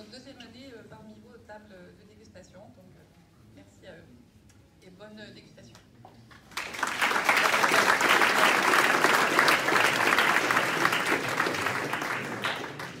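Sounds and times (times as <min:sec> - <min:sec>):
audience applauding: 0:06.5 - 0:13.0.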